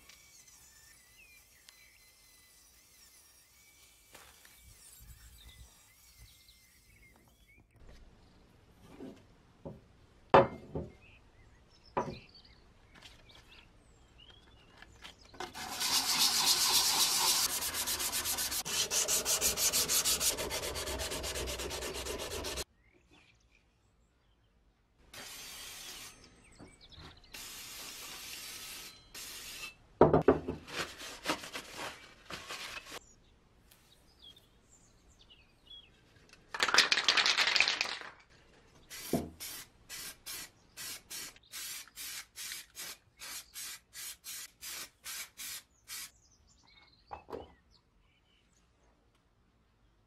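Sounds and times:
spray can hissing: 15.6 - 22.6, 27.4 - 29.7, 38.9 - 46.1.

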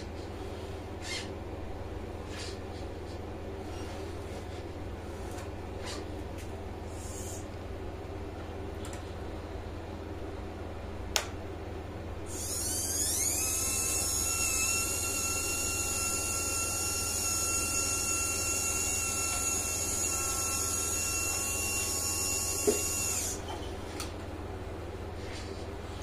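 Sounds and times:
faint motor sound: 0.0 - 11.0, 11.6 - 26.0
high-pitched servo whine: 7.0 - 7.4, 12.3 - 23.4.

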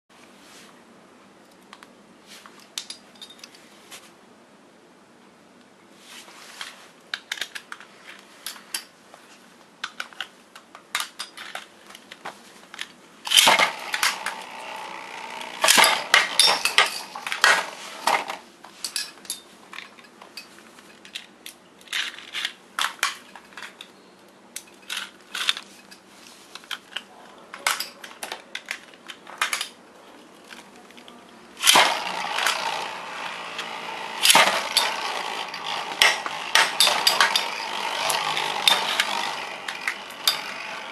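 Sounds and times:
spinning tops rattling in stadium: 13.3 - 18.4, 31.6 - 40.9.

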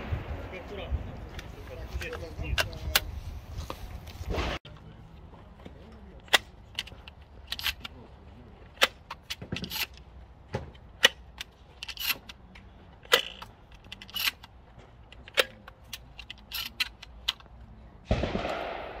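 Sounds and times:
gunshots cracking: 18.1 - 19.0.

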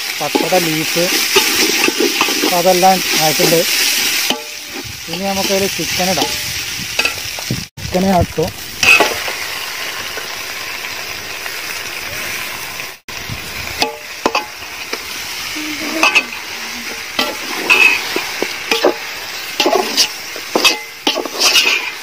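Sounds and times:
chicken sizzling in a pot: 0.0 - 22.0
metal spatula scraping a pot: 0.2 - 7.3, 8.8 - 9.3, 15.8 - 22.0.

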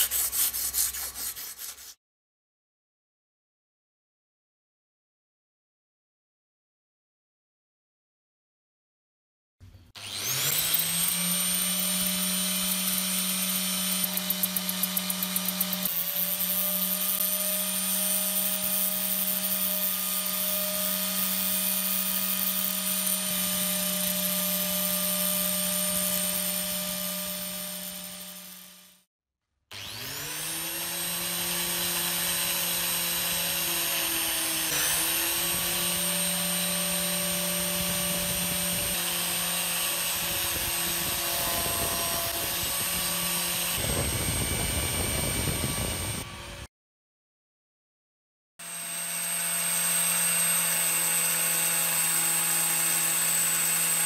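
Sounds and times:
power tool motor whining: 10.0 - 29.0, 29.7 - 46.7.

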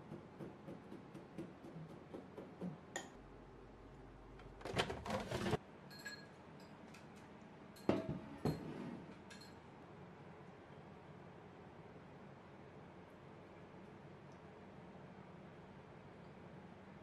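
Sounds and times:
kitchenware clattering: 7.8 - 9.5.

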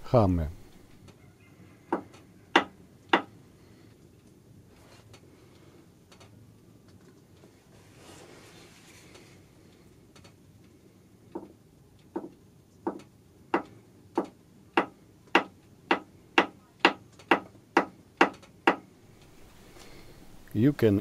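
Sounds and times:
soft hammer tapping on metal: 12.2 - 18.8.

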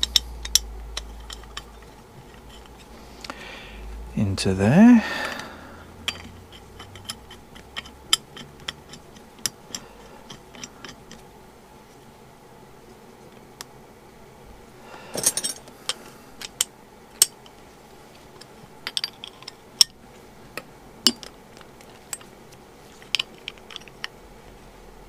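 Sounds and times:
spanners jangling: 6.0 - 9.1, 15.1 - 15.7.

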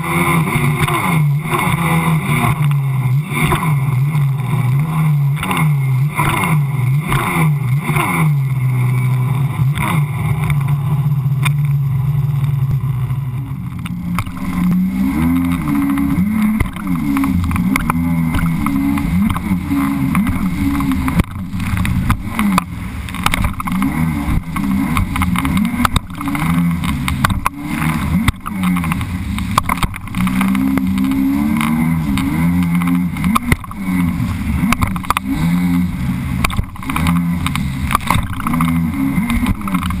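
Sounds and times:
watercraft engine droning: 0.0 - 40.0.

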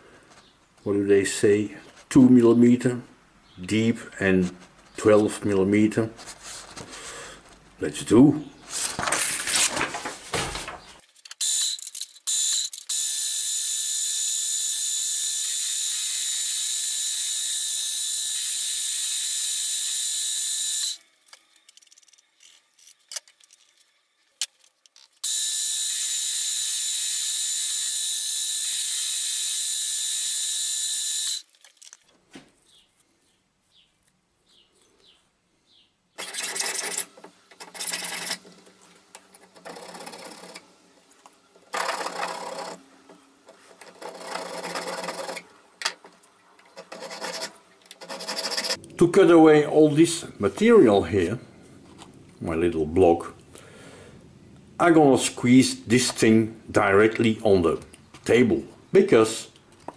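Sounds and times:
clatter of parts being handled: 8.9 - 12.9, 21.2 - 25.2.

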